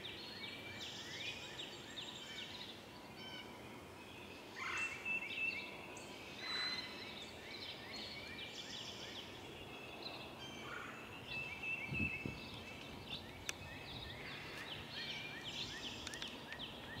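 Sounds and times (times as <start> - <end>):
songbirds singing and chirping: 0.0 - 17.0
sharp click: 16.0 - 16.6.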